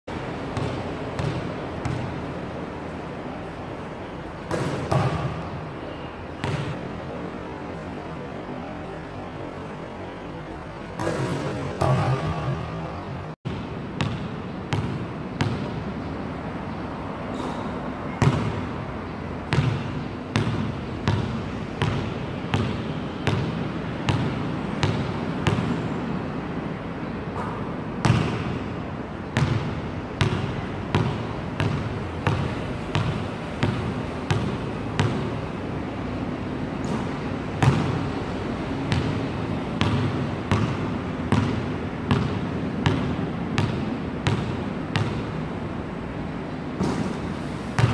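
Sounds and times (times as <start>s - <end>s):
steady background noise: 0.1s - 47.9s
basketball bouncing on hard court: 0.5s - 2.2s, 4.5s - 5.6s, 6.4s - 6.8s, 11.0s - 12.7s, 13.5s - 15.8s, 17.3s - 18.7s, 19.5s - 25.8s, 27.4s - 28.6s, 29.4s - 35.3s, 36.8s - 38.0s, 38.9s - 45.2s.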